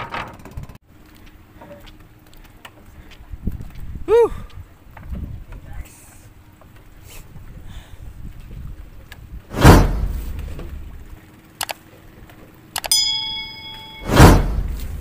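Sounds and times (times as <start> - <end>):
short metallic ding: 12.9 - 14.5.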